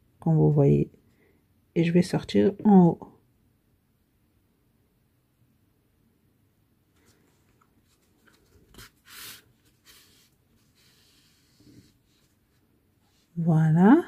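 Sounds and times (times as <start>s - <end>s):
yarn and needle rustling: 7.0s - 14.0s.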